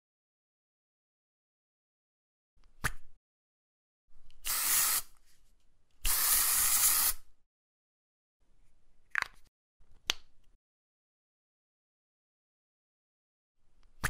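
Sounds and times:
aerosol spray hissing: 4.4 - 5.1, 6.0 - 7.3.

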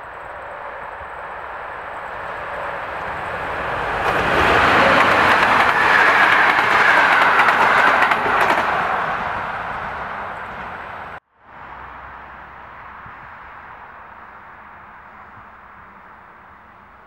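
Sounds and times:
train passing at speed: 0.0 - 17.0
wheels clacking over rail joints: 2.4 - 11.2.

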